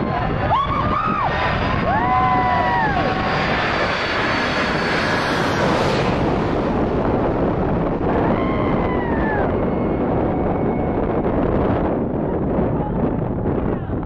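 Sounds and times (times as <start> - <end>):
high jet whine: 0.0 - 13.7
jet airliner roaring overhead: 0.0 - 14.0.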